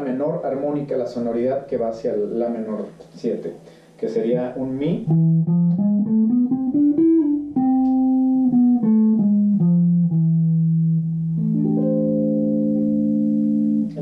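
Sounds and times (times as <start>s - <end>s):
guitar chord ringing: 5.1s - 14.0s.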